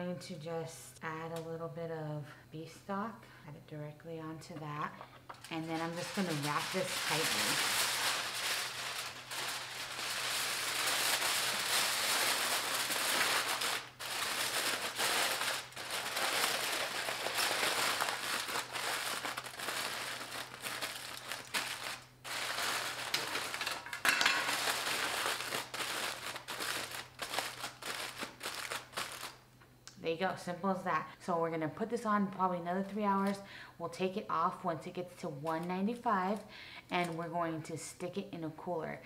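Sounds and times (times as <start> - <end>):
aluminium foil crinkling: 5.3 - 29.4, 35.5 - 37.2.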